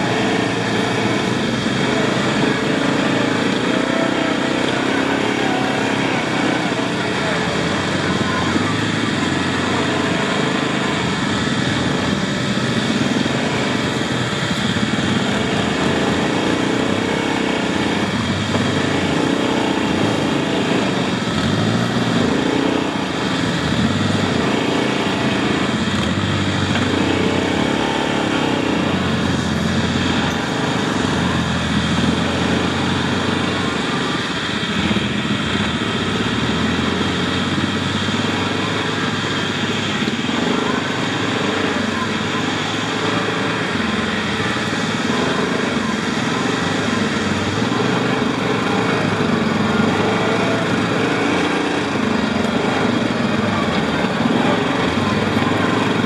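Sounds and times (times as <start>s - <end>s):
atv engine revving: 0.0s - 56.0s.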